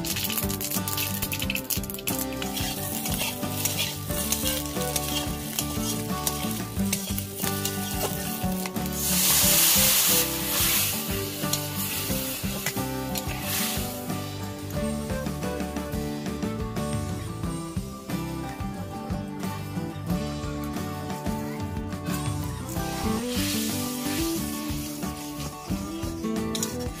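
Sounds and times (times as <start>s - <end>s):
fish sizzling in hot oil: 0.0s - 15.2s, 22.7s - 26.0s
spatula stirring in pan: 0.1s - 14.2s.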